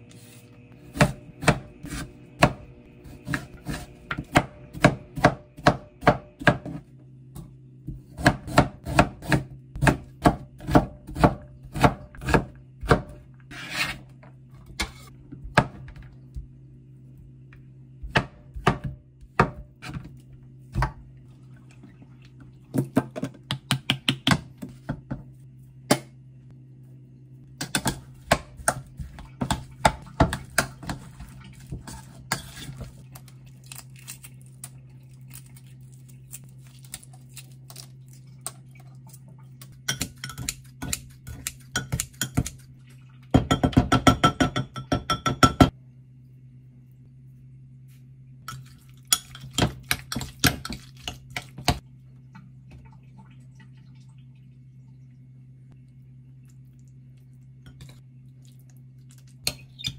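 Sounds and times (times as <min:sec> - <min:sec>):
low steady hum: 0:00.0 - 0:59.9
knife chopping on plastic board: 0:03.2 - 0:06.8, 0:27.6 - 0:31.1
spoon stirring in a bowl: 0:27.6 - 0:34.2, 0:38.4 - 0:42.7, 0:48.5 - 0:51.8.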